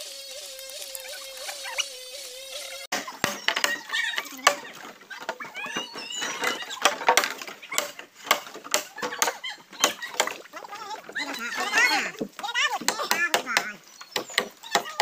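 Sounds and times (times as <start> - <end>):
bamboo poles knocking together: 2.9 - 10.4.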